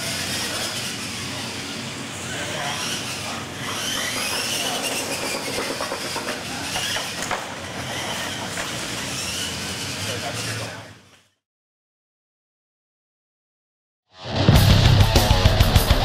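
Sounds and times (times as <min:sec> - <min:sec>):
electric motors whining: 0:00.0 - 0:11.2.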